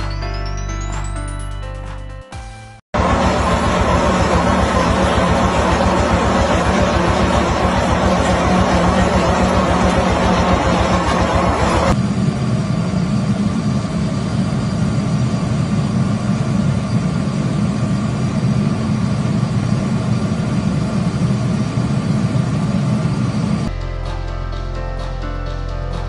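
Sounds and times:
loud machinery noise: 3.0s - 23.7s.

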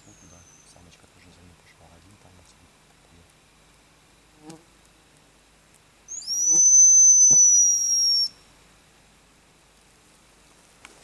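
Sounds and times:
high thin bird caller whistle: 6.1s - 8.4s.

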